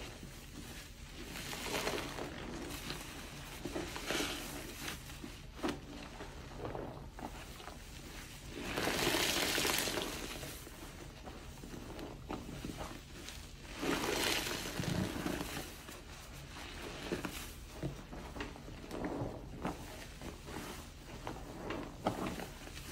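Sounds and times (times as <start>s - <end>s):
wet squishing: 0.1s - 22.8s
soapy water gushing from sponge: 0.1s - 22.9s.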